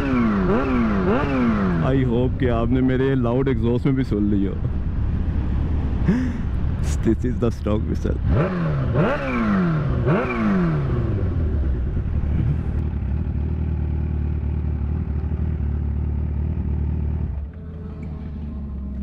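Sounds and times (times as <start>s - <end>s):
motorcycle engine idling: 9.6s - 19.0s.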